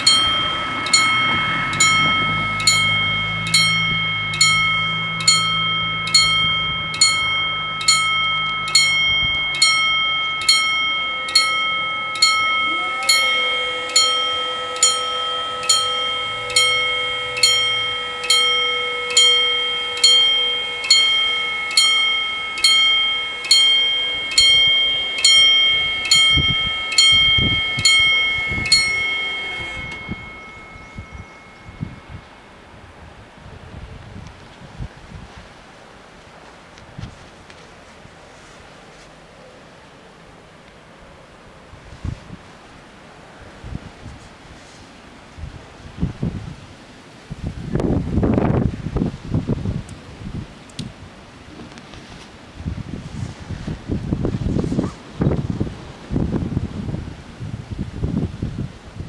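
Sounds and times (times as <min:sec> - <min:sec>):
level crossing warning bell: 0:00.0 - 0:34.0.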